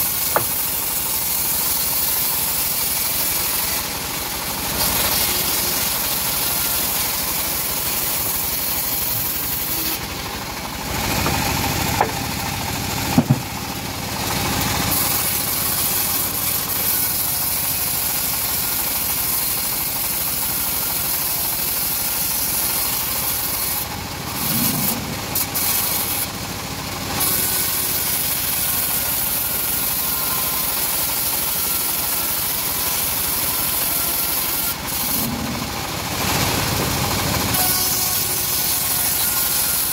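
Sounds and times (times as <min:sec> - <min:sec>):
bandsaw mill sawing log: 0:00.0 - 0:39.9
sharp knocks: 0:00.3 - 0:00.7, 0:11.2 - 0:12.3, 0:13.1 - 0:13.6.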